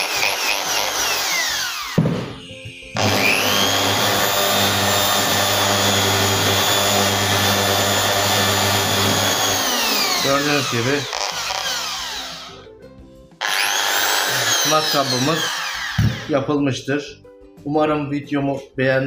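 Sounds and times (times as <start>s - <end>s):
electric drill whining: 0.0s - 2.4s, 3.0s - 12.7s, 13.4s - 16.3s.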